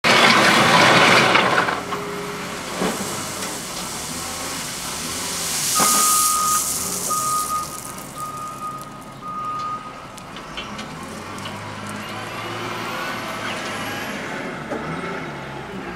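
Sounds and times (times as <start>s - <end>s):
wheel loader working: 0.0s - 15.9s
loud rushing noise: 0.7s - 8.8s
short hiss: 2.7s - 8.8s
reverse alarm beeping: 5.8s - 10.0s.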